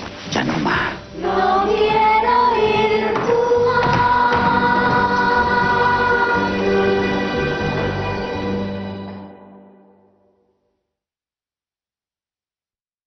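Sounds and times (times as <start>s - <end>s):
music: 0.0s - 11.0s
voices singing long held notes: 0.9s - 9.8s.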